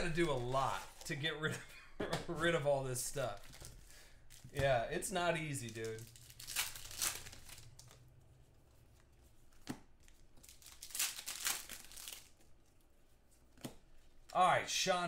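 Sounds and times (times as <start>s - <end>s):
wrappers tearing and crinkling: 5.4s - 8.0s, 10.0s - 12.5s.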